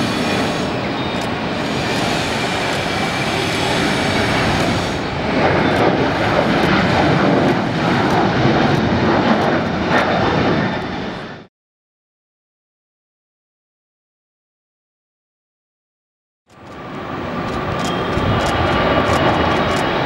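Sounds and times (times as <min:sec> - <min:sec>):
jet engines at takeoff: 0:00.0 - 0:11.5, 0:16.5 - 0:20.0.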